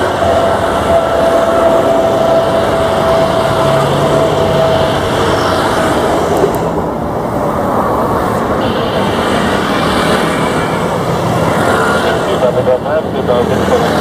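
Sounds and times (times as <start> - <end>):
jet engine whine: 0.0 - 14.0
jet engines roaring: 0.0 - 14.0.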